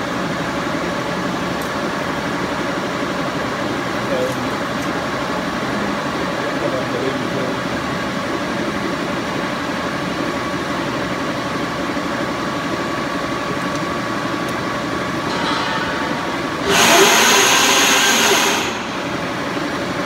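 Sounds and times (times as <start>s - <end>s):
lathe humming: 0.0s - 20.0s
loud hiss: 16.6s - 19.4s.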